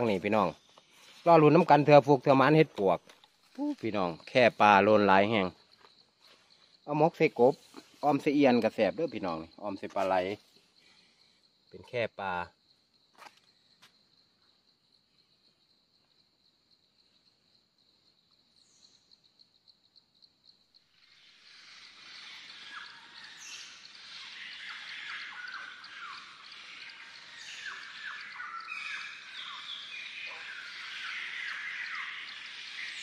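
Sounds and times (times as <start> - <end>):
birds chirping: 0.0 - 5.5, 21.5 - 33.0
high pulsing insect trill: 0.0 - 33.0.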